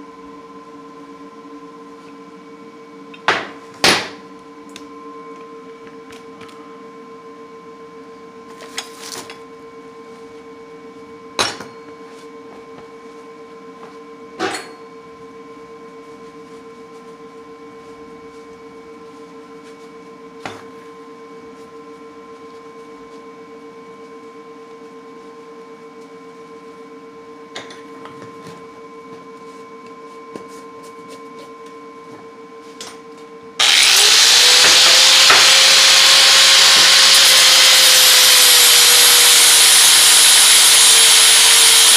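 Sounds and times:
angle grinder spinning: 33.6s - 41.9s.

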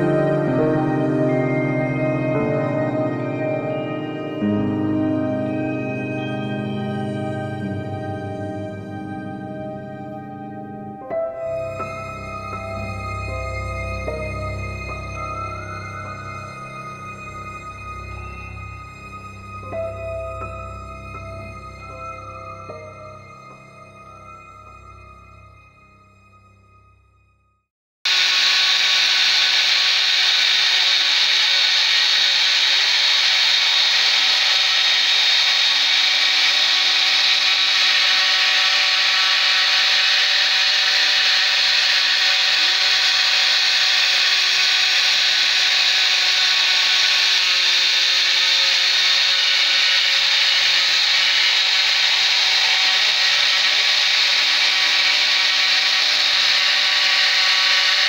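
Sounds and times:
router spindle whine cutting wood: 28.1s - 58.0s.

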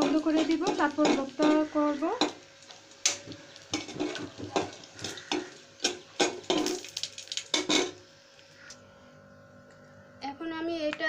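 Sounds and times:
spoon scraping a metal pot: 0.0s - 2.4s, 3.0s - 6.8s
garlic frying in oil: 0.0s - 8.1s.

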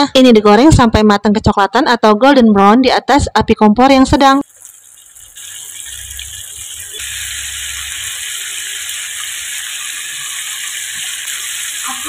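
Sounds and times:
chicken deep-frying in oil: 4.2s - 12.0s.

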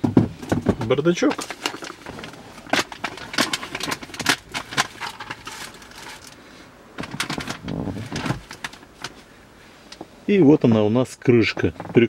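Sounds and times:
plastic glovebox clicks and knocks: 0.0s - 5.2s, 7.0s - 9.2s
packaging rustle: 0.4s - 6.4s, 7.0s - 9.3s.

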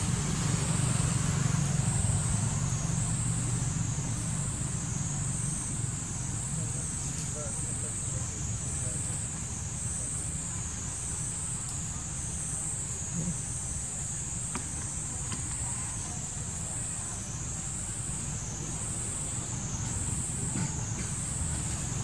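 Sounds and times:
low steady rumble: 0.0s - 22.0s
high-pitched insect chorus: 0.3s - 22.0s.

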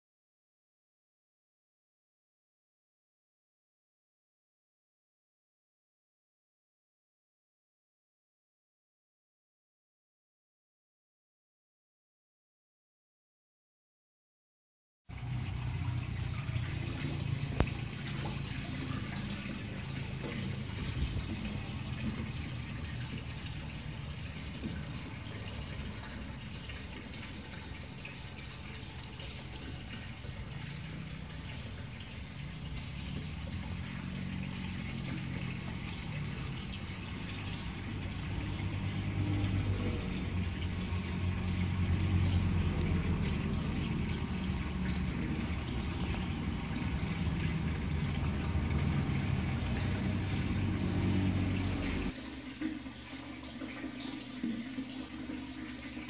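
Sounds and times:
low steady hum: 15.1s - 56.0s
water pouring into tube: 15.1s - 56.0s.

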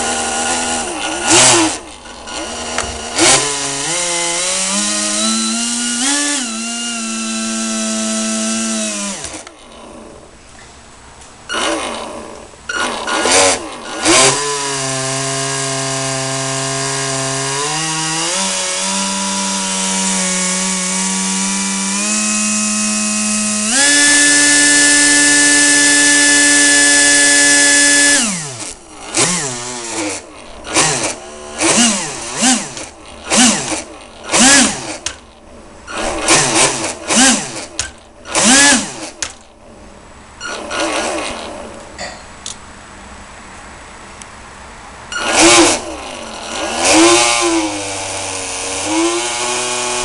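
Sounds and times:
motor throttle blips: 11.5s - 14.4s.

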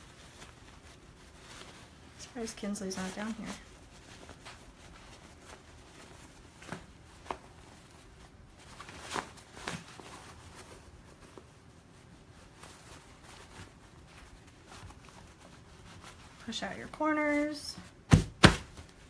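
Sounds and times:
fabric brushes and taps: 0.0s - 19.0s
fabric rustling: 0.0s - 19.0s.

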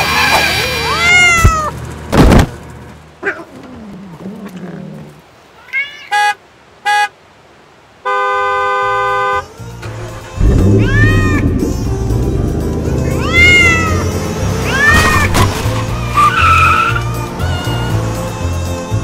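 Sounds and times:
cat meowing: 0.9s - 1.7s, 5.6s - 6.1s, 10.8s - 11.6s, 13.0s - 15.4s
loud thump: 2.1s - 2.6s, 14.9s - 15.8s
car horn honking: 6.1s - 7.1s, 8.0s - 9.5s.

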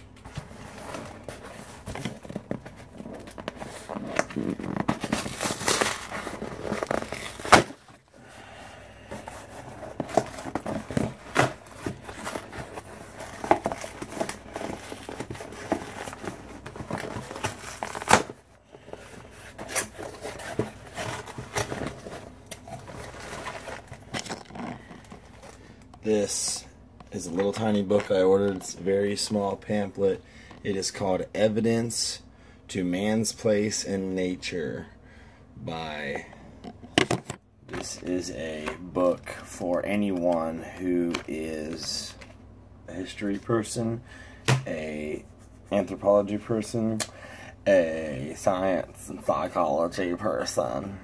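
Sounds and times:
cardboard flaps rustling and scraping: 0.2s - 8.1s, 9.1s - 25.6s
packing tape tearing: 3.8s - 7.8s.

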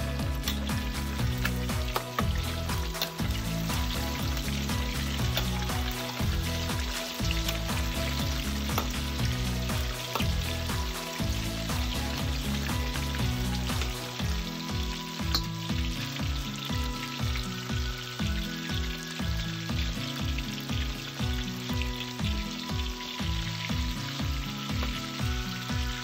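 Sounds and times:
background music with bass line: 0.0s - 26.0s
chicken sizzling in hot oil: 0.0s - 26.0s.

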